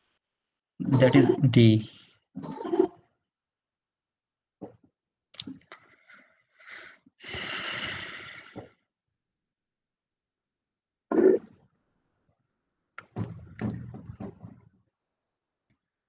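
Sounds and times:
person breathing out: 0:06.0 - 0:08.7
person sniffing: 0:06.6 - 0:08.6.

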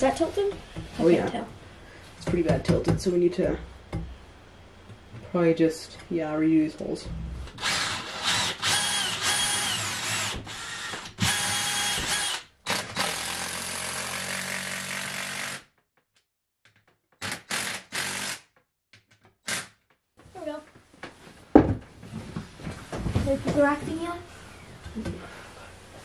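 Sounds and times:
cordless drill drilling into wood: 0:07.6 - 0:15.6, 0:17.2 - 0:18.4.

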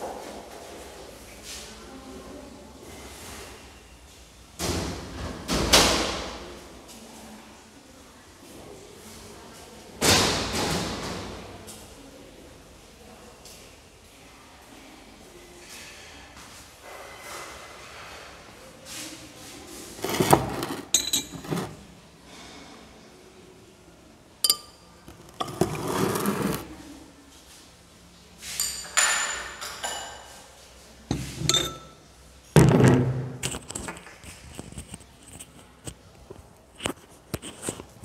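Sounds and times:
glassware clinking: 0:20.0 - 0:21.8, 0:24.4 - 0:25.9, 0:28.6 - 0:30.3, 0:31.1 - 0:32.0.

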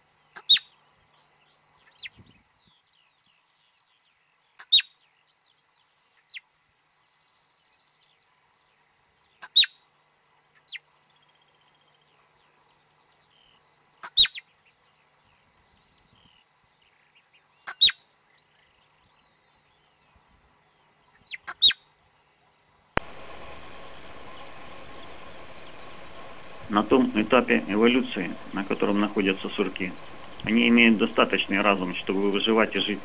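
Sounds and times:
faint bird chirps: 0:00.0 - 0:22.3
marmot whistling calls: 0:00.4 - 0:00.7, 0:14.0 - 0:14.4, 0:17.7 - 0:18.0, 0:21.2 - 0:21.8.

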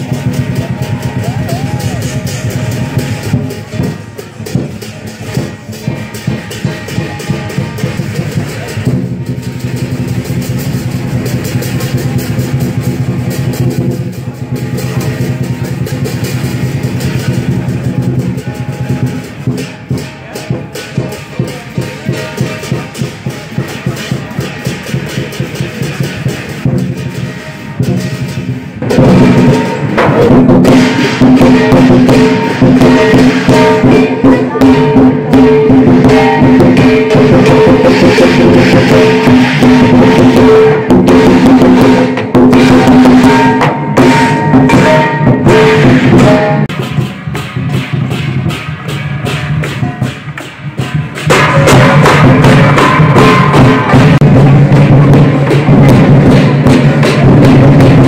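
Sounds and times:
big drum beating: 0:00.0 - 0:58.0
cymbals clashing: 0:00.0 - 0:58.0
gong ringing: 0:26.2 - 0:57.8.

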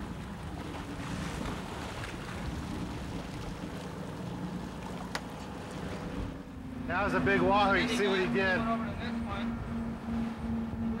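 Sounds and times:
boat engine running: 0:00.0 - 0:11.0
water rushing along hull: 0:00.0 - 0:11.0
wind on microphone: 0:07.0 - 0:11.0.

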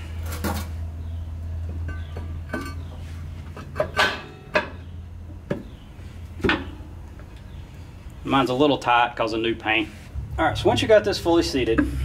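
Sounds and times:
metal knocks and scrapes: 0:01.7 - 0:04.8.

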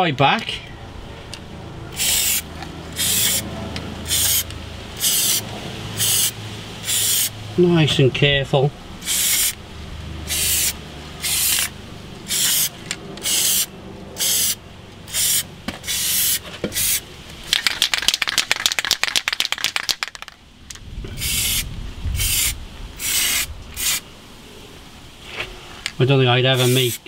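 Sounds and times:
aerosol can spraying: 0:02.0 - 0:02.4, 0:03.0 - 0:03.4, 0:04.1 - 0:05.4, 0:06.0 - 0:07.3, 0:09.0 - 0:09.6, 0:10.3 - 0:11.7, 0:12.3 - 0:17.0, 0:21.2 - 0:21.6, 0:22.2 - 0:24.0, 0:26.6 - 0:27.0
spray can rattling when shaken: 0:03.0 - 0:03.4, 0:04.1 - 0:04.4, 0:05.0 - 0:05.4, 0:06.0 - 0:07.3, 0:10.3 - 0:11.7, 0:12.3 - 0:20.4, 0:21.2 - 0:21.6, 0:22.2 - 0:24.0, 0:26.6 - 0:27.0.

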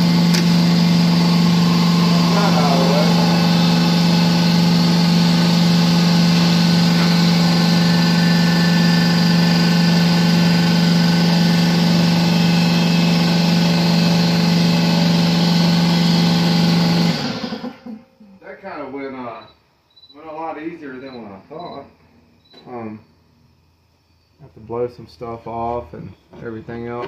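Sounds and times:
power tool motor humming: 0:00.0 - 0:17.6.

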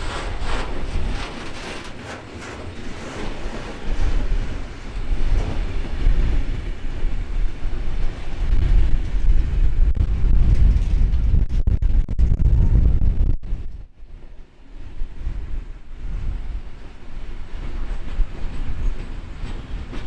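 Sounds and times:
train wheels clacking over rail joints: 0:00.0 - 0:06.6, 0:17.5 - 0:20.0
deep rumble of train: 0:00.0 - 0:20.0.

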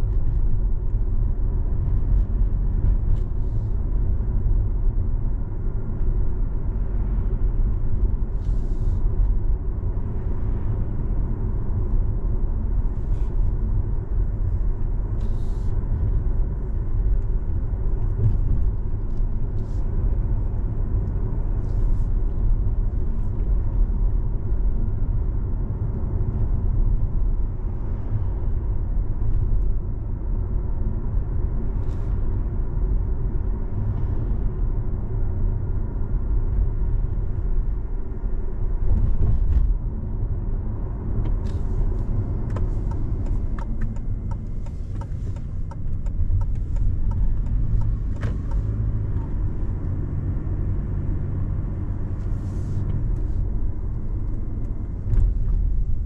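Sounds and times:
car driving rumble: 0:00.0 - 0:56.0.

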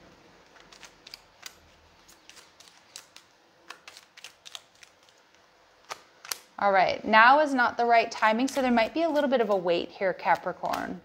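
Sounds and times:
cards being shuffled: 0:00.4 - 0:06.5, 0:08.5 - 0:11.0.

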